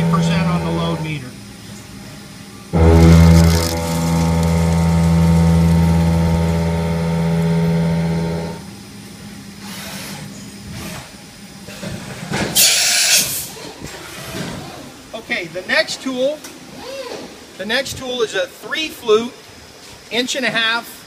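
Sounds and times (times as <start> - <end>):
milling machine cutting hum: 0.0 - 1.2, 2.8 - 8.8
short loud hiss: 12.5 - 13.5.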